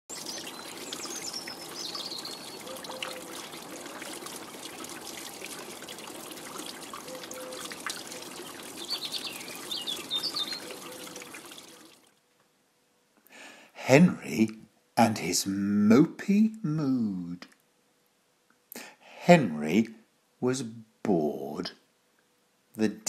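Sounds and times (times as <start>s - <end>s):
water trickling: 0.0s - 12.2s.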